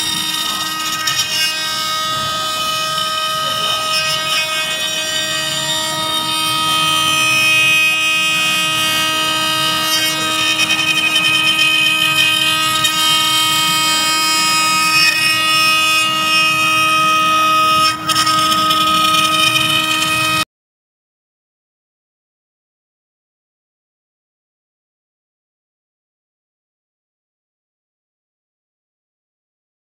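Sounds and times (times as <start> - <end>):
bit cutting into wood: 0.0 - 20.4
router spindle high whine: 0.0 - 20.4.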